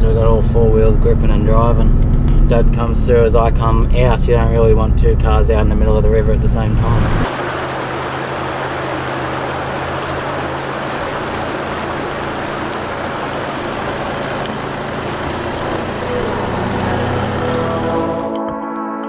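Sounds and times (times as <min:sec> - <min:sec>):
car engine droning: 0:00.0 - 0:18.4
river water rushing: 0:06.8 - 0:18.4
music: 0:15.7 - 0:19.0.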